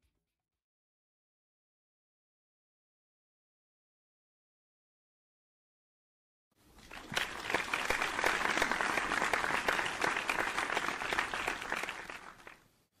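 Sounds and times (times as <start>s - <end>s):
crowd applause: 6.8s - 12.6s.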